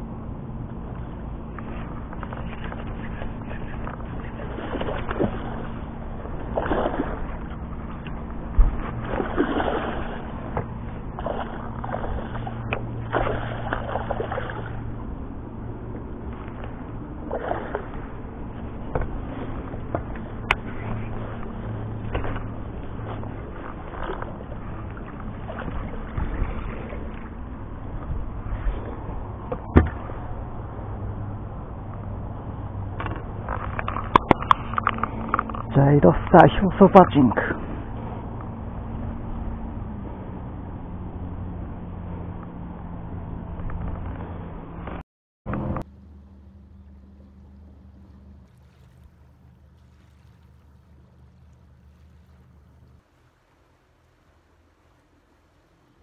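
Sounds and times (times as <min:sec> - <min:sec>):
steady low hum: 0:00.0 - 0:56.0
water splashing and sloshing: 0:00.0 - 0:56.0
fish splashing at water surface: 0:01.8 - 0:15.1, 0:15.9 - 0:27.6.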